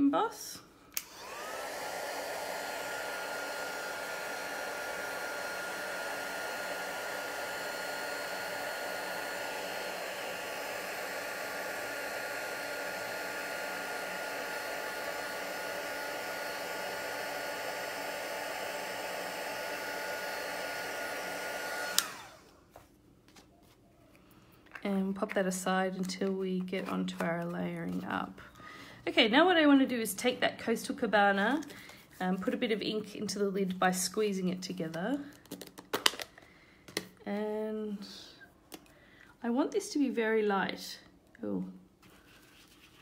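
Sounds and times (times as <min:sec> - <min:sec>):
heat tool fan whining: 0:01.0 - 0:22.6.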